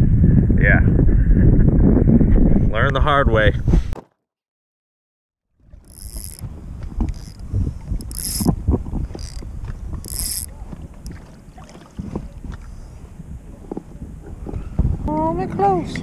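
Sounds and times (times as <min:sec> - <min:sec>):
low wind rumble: 0:00.0 - 0:04.0, 0:05.6 - 0:16.0
fishing reel whirring: 0:05.6 - 0:11.5.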